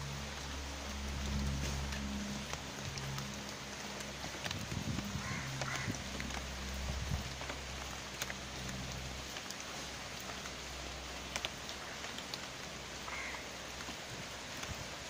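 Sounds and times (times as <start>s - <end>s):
low hum: 0.0s - 11.7s
rain falling on water: 0.0s - 15.0s.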